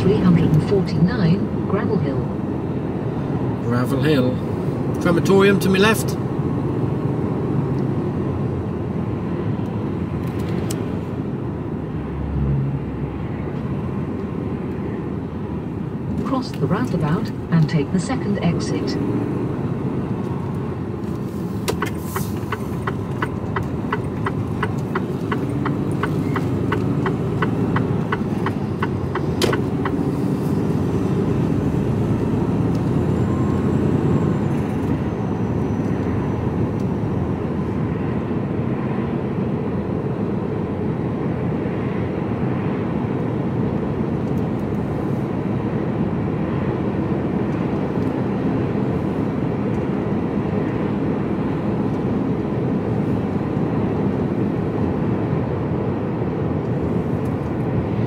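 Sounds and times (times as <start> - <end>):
truck diesel engine and road noise: 0.0 - 58.0
turn indicator ticking: 21.6 - 30.1.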